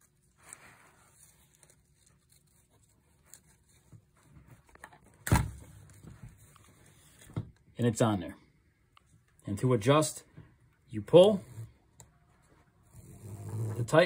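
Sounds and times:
webbing rustling through buckle: 0.0 - 5.2.

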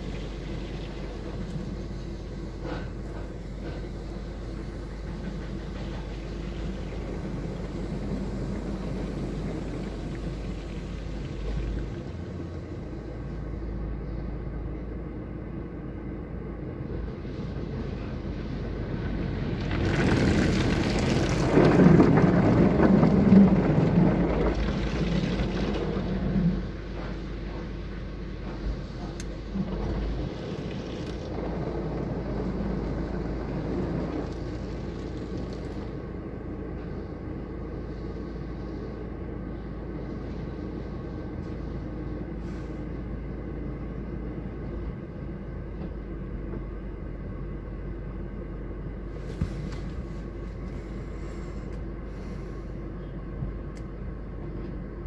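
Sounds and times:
car wash water spray: 0.0 - 13.3, 28.8 - 36.3, 49.1 - 52.8
low hum: 0.0 - 55.0.

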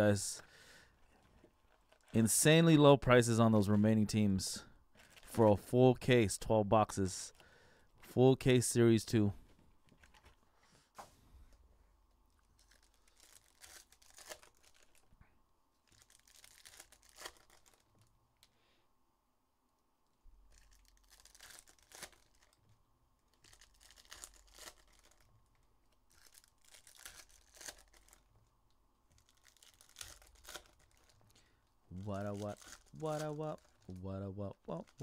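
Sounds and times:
foil wrappers tearing and crinkling: 12.5 - 15.1, 15.8 - 18.0, 20.5 - 22.6, 23.3 - 28.3, 29.1 - 34.0.

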